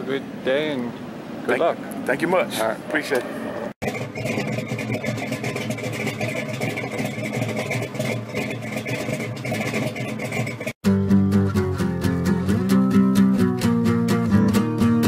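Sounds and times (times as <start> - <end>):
engine idling: 3.8 - 10.8.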